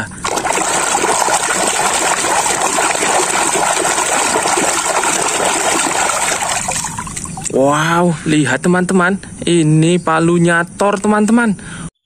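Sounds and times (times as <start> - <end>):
water sloshing and splashing: 0.2 - 7.6.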